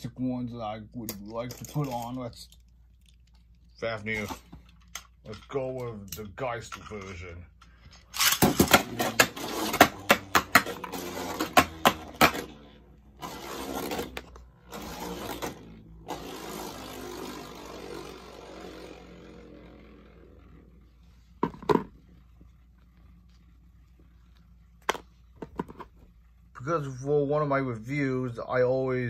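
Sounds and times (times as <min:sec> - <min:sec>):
spinning top whirring: 0:08.2 - 0:23.9.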